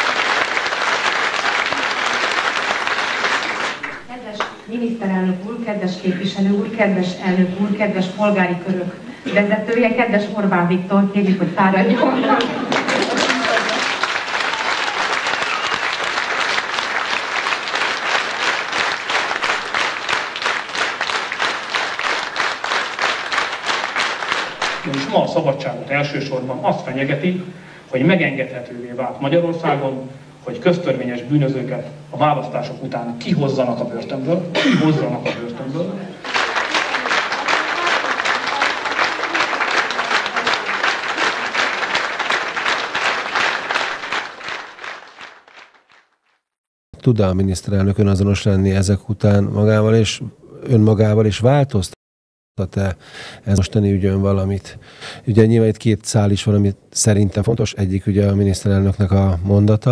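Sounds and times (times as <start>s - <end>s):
audience applauding: 0.0s - 4.5s, 11.9s - 25.6s, 35.2s - 46.4s
rhythmic clapping in unison: 0.0s - 4.6s, 12.4s - 25.3s, 36.1s - 46.4s.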